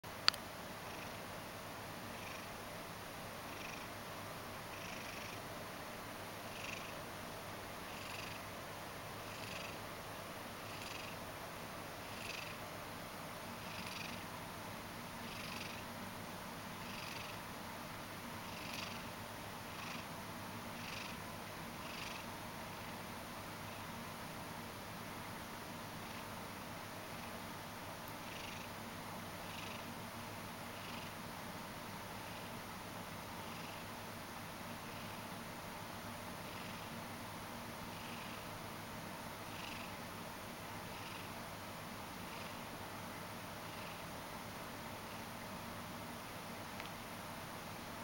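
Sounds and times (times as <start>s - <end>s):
cat purring: 0.8s - 1.3s, 2.0s - 2.6s, 3.4s - 4.0s, 4.6s - 5.5s, 6.4s - 7.0s, 7.8s - 8.5s, 9.2s - 9.8s, 10.6s - 11.2s, 12.0s - 12.6s, 13.6s - 14.3s, 15.2s - 15.9s, 16.8s - 17.4s, 18.4s - 19.1s, 19.7s - 20.2s, 20.8s - 22.3s, 28.2s - 28.7s, 29.4s - 29.9s, 30.8s - 31.2s, 33.4s - 33.8s, 34.7s - 35.2s, 36.4s - 37.0s, 37.9s - 38.4s, 39.4s - 40.0s, 40.8s - 41.4s, 42.2s - 42.7s, 43.6s - 44.1s.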